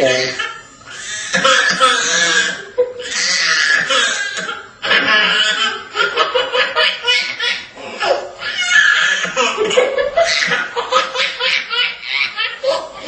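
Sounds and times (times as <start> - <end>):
people laughing: 4.8 - 8.3, 9.0 - 13.0.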